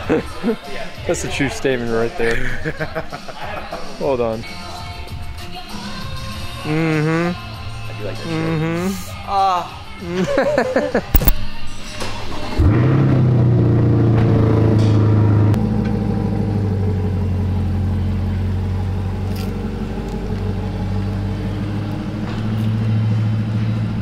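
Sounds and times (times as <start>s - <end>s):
car engine idling: 12.6s - 24.0s.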